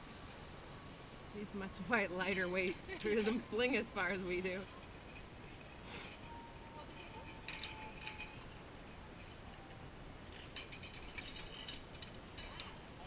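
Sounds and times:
metal carabiners clinking: 2.1s - 13.0s.

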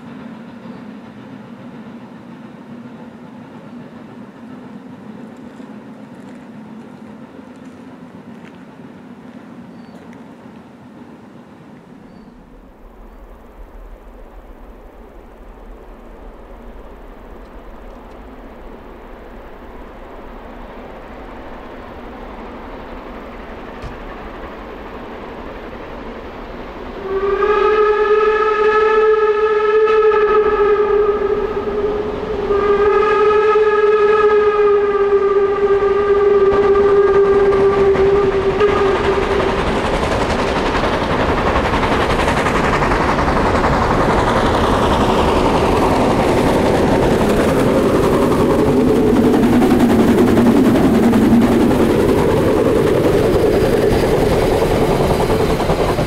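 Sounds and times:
steam train passing: 0.0s - 56.0s
steam locomotive whistle blasts: 26.9s - 39.9s.

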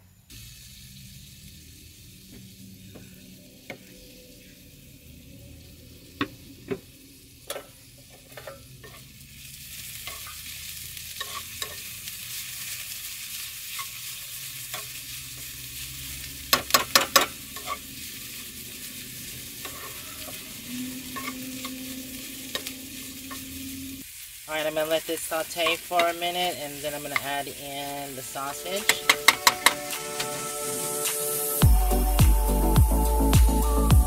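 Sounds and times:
vegetables sizzling in a frying pan: 0.0s - 31.6s
spatula scraping and knocking pan: 7.5s - 9.1s, 9.9s - 12.0s, 16.4s - 24.0s, 28.8s - 30.4s.

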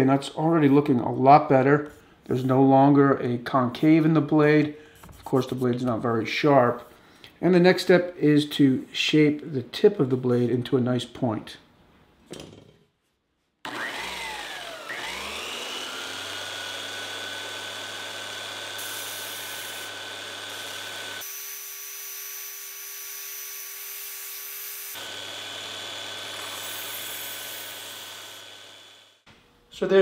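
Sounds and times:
belt sander motor whine: 13.7s - 29.2s.

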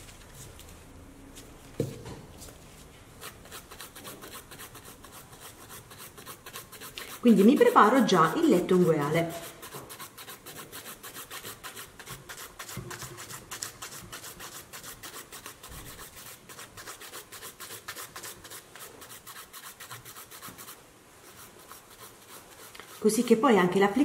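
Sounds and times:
nail file rasping: 3.2s - 20.8s, 21.4s - 23.2s.

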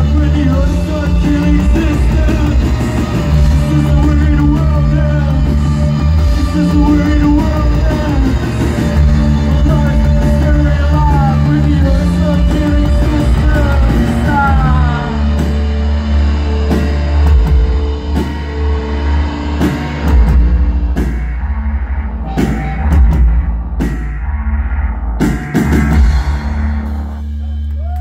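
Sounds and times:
live rock band playing: 0.0s - 28.0s
drum hits: 19.6s - 27.2s.

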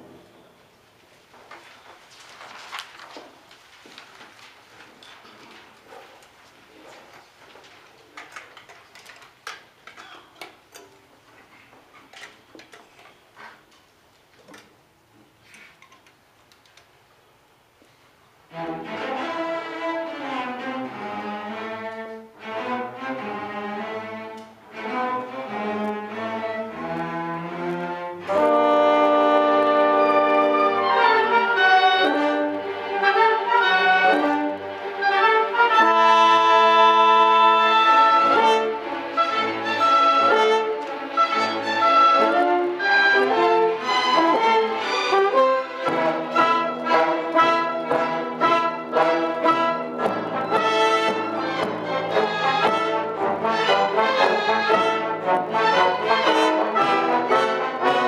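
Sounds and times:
faint clicks: 15.4s - 17.0s
orchestra playing: 18.5s - 58.0s.

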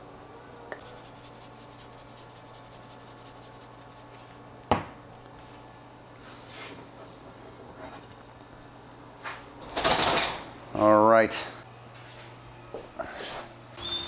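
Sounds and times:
spice shaker rattling: 0.8s - 4.1s.

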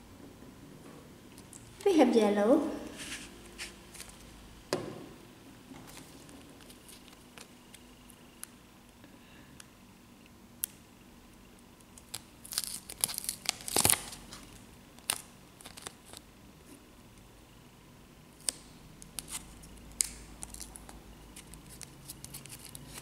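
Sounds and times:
plastic packet crinkling: 12.0s - 16.2s, 21.4s - 23.0s
paper sticker peeling: 21.4s - 23.0s.

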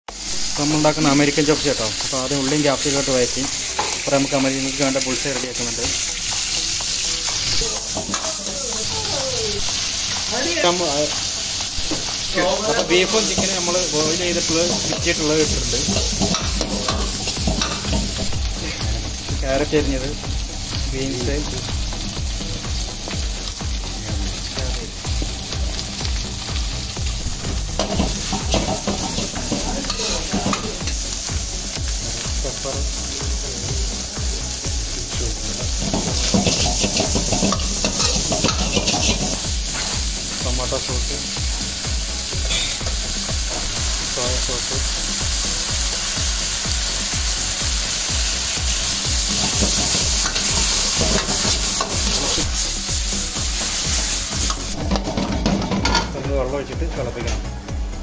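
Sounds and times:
food sizzling in a wok: 0.1s - 58.0s
metal ladle scraping wok: 53.5s - 56.1s.

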